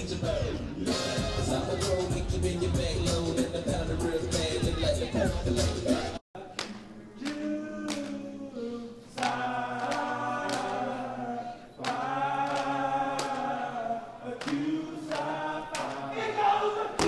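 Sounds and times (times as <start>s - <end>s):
voices chanting in unison: 7.2s - 17.0s.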